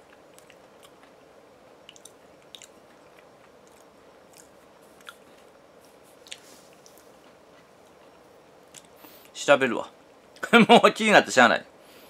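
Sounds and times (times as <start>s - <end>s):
chewing crisps: 0.0s - 5.5s
room hum: 0.0s - 12.0s.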